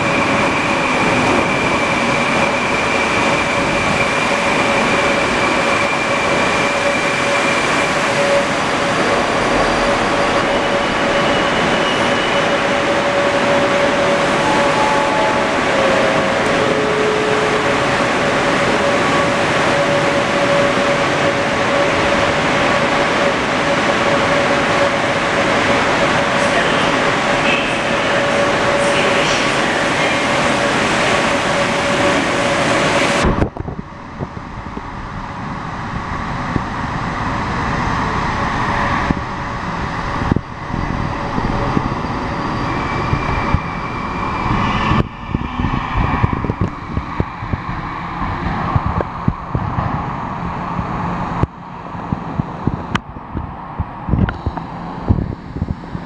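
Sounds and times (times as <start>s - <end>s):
metro train running: 0.0s - 56.0s
held tone: 8.2s - 22.1s.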